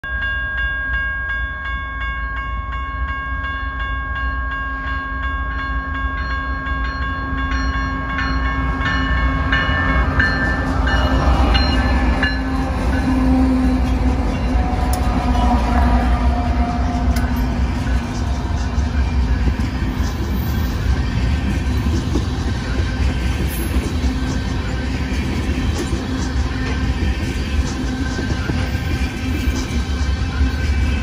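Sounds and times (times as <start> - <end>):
crossing bell ringing: 0.0 - 31.0
diesel locomotive engine rumble: 6.4 - 31.0.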